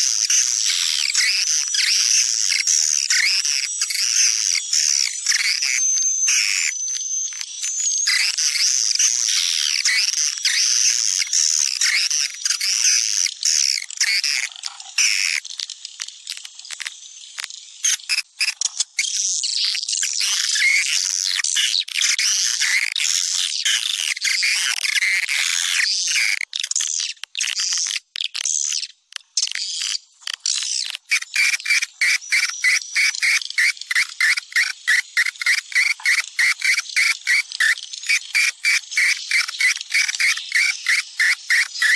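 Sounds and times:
rapid dry clicks: 7.4 - 41.9
swiftlets chirping: 29.8 - 41.9.

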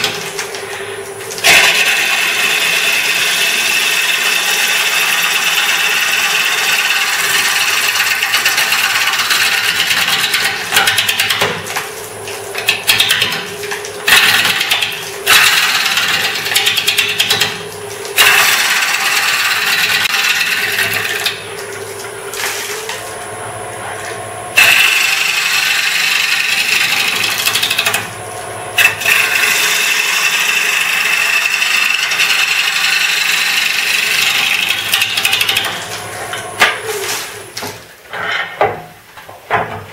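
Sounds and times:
lathe tool scraping wood: 0.0 - 10.9, 14.1 - 17.6, 18.2 - 21.5, 24.6 - 28.1, 28.8 - 36.5.

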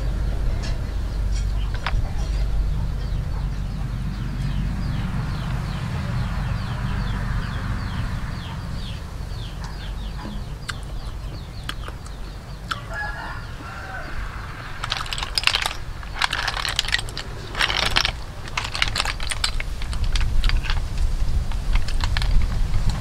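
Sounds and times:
chickens peeping and clucking: 0.0 - 23.0
snail shells clattering: 9.4 - 23.0.

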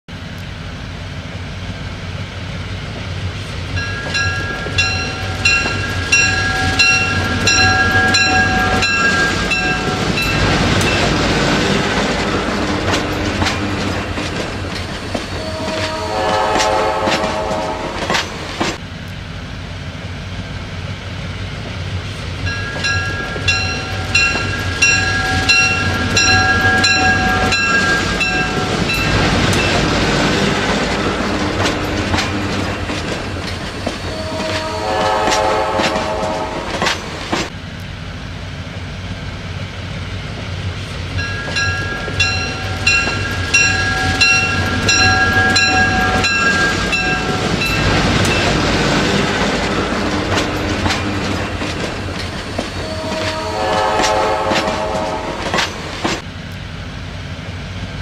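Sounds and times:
locomotive engine rumble: 0.1 - 58.0
multi-chime air horn blasts: 15.4 - 17.8, 34.1 - 36.5, 52.9 - 55.2.

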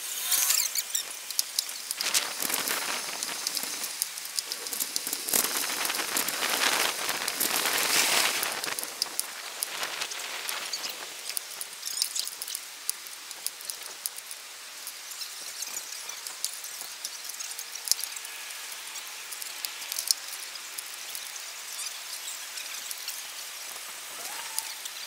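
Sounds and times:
bicycle rolling over pavement: 0.0 - 24.2.

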